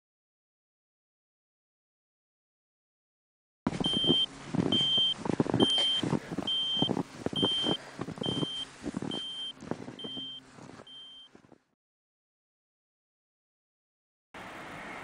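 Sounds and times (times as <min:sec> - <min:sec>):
avalanche beacon beeping: 0:03.8 - 0:11.4.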